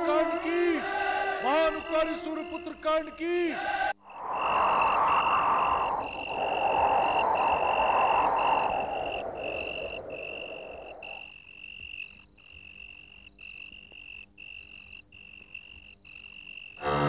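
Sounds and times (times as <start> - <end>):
high steady animal trill: 4.1 - 11.2.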